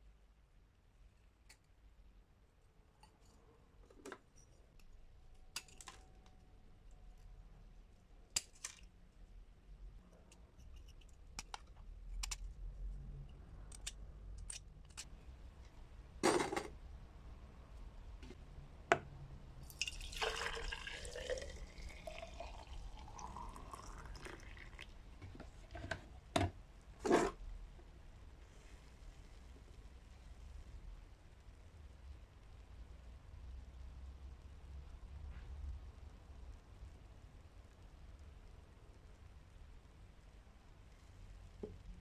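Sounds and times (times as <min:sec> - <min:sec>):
liquid pouring into glass jar: 0:19.6 - 0:25.1.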